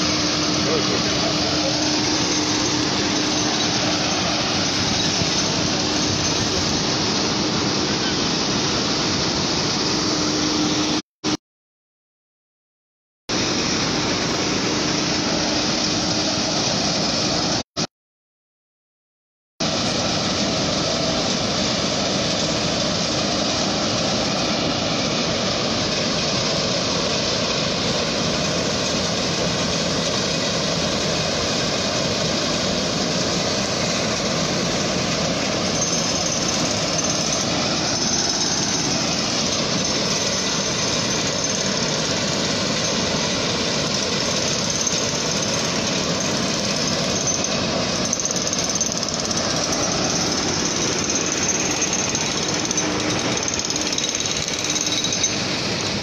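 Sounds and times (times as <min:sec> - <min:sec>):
heavy vehicle engine running: 0:00.0 - 0:11.0.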